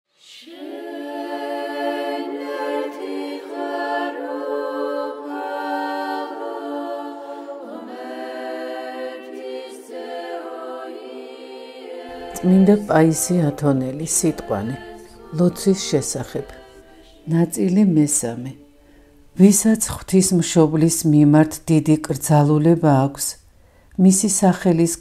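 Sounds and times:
unaccompanied choir chanting: 0.2s - 19.6s.

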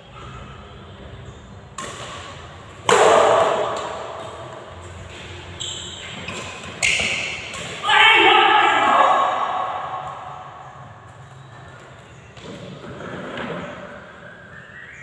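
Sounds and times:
rackets striking shuttlecock: 1.7s - 5.4s, 6.1s - 7.8s.

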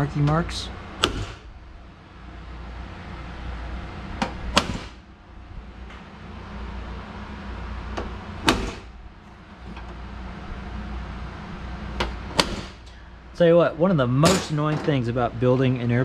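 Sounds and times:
low hum: 0.0s - 16.0s.

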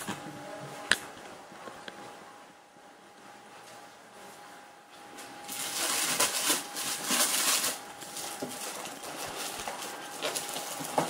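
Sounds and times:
plastic wrapping crinkling: 5.2s - 11.0s.

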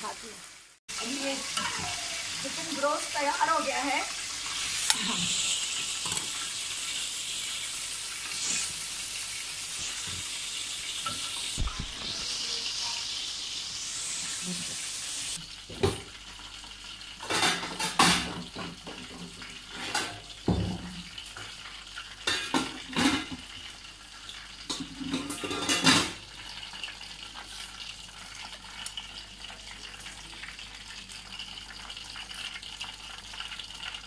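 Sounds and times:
plates and dishes clattering: 17.2s - 21.0s, 22.2s - 23.4s, 24.7s - 26.2s.

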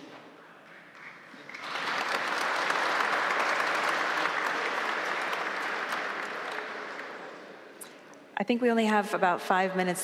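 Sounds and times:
audience applauding: 0.9s - 7.5s.

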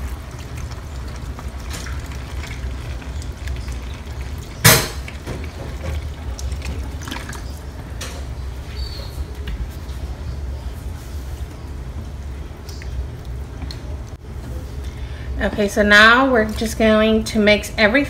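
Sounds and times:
liquid pouring into a pan: 0.0s - 8.4s.

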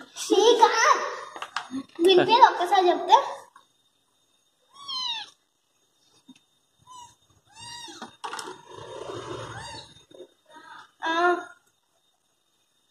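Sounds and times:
kitten meowing: 4.7s - 5.4s, 6.8s - 8.2s, 9.5s - 10.0s.

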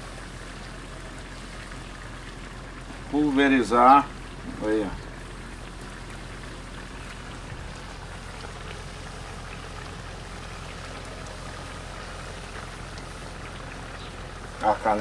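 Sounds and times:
meat sizzling in a pan: 0.0s - 15.0s.

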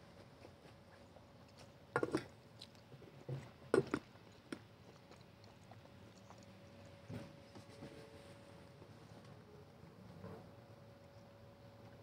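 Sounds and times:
faint steady hum: 0.0s - 12.0s
man chewing with wet mouth clicks: 2.2s - 7.0s.

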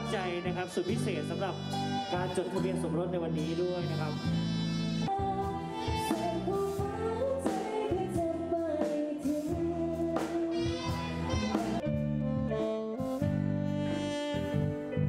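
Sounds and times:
person singing: 0.0s - 4.4s, 5.1s - 11.8s
band playing: 0.0s - 15.0s.

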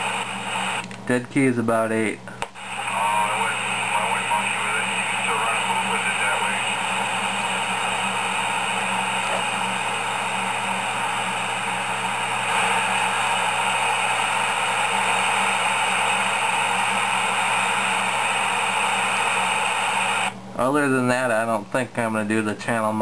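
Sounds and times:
radio static hiss: 0.0s - 21.4s.

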